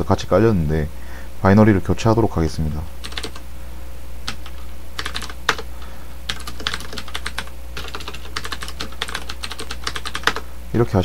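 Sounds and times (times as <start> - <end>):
steady low hum: 0.0 - 11.0
computer keyboard typing: 3.0 - 3.4, 4.3 - 5.7, 6.3 - 10.4.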